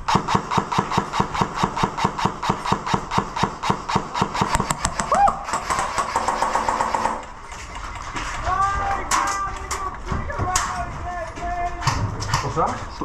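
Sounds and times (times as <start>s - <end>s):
airsoft gun rapid shots: 0.0s - 7.3s.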